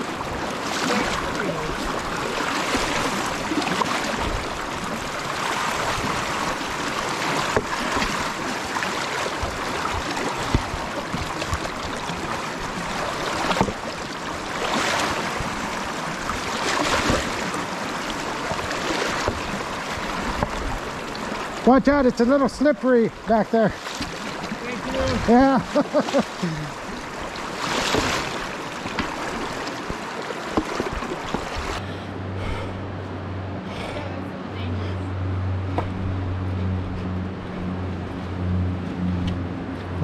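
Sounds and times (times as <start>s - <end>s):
water splashing: 0.0s - 31.8s
wading through flowing river: 0.0s - 40.0s.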